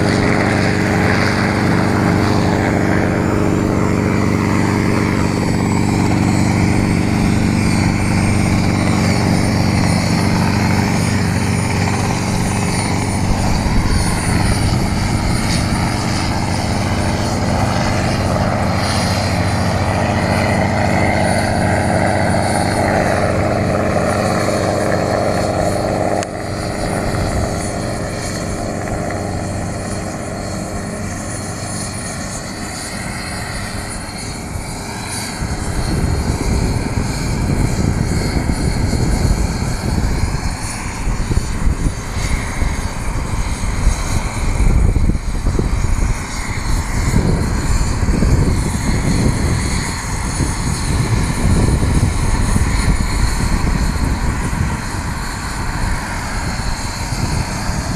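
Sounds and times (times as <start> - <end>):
helicopter engine and rotors: 0.0 - 57.9
wind buffeting microphone: 0.0 - 57.9.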